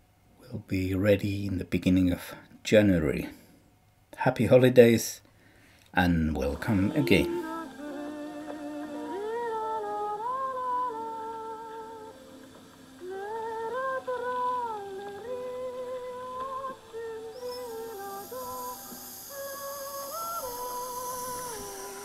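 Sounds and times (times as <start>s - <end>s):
person humming: 6.2s - 22.0s.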